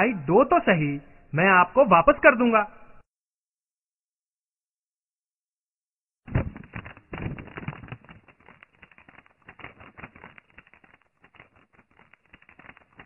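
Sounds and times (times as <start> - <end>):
paper rustling and crinkling: 6.3 - 13.0.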